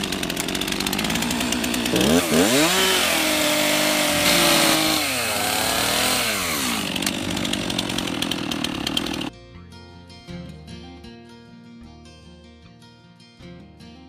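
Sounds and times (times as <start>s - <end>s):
chainsaw engine revving: 0.0s - 9.3s
quiet acoustic guitar music: 9.3s - 14.0s.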